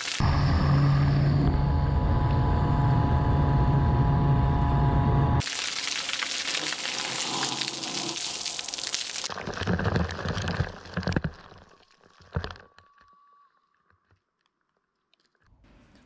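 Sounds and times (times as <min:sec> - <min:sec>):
water jet hissing onto gravel: 0:00.0 - 0:00.2, 0:05.4 - 0:10.7.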